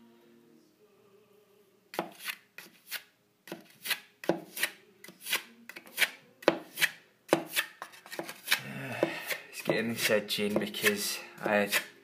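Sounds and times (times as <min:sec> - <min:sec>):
filling knife scraping plaster: 0:10.8 - 0:12.0.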